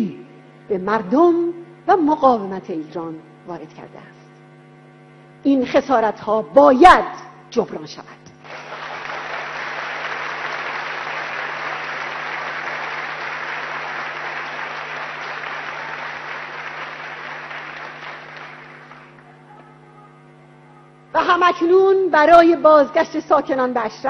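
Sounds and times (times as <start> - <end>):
audience applauding: 8.4 - 19.4.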